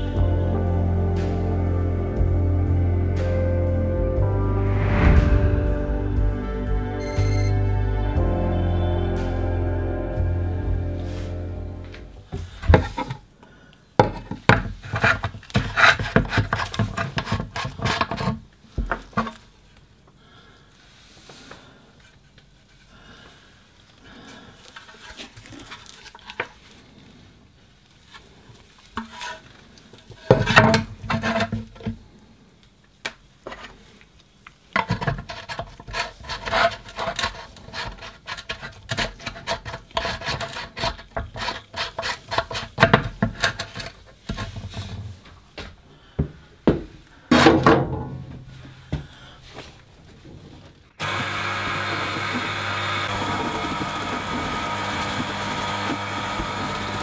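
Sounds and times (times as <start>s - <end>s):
sharp clicks knocks and scrapes: 14.0s - 19.4s, 30.1s - 32.0s, 34.8s - 45.2s.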